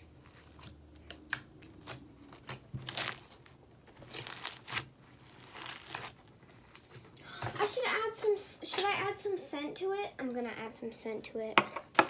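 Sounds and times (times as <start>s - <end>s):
foam bead slime crunching: 0.0s - 7.0s.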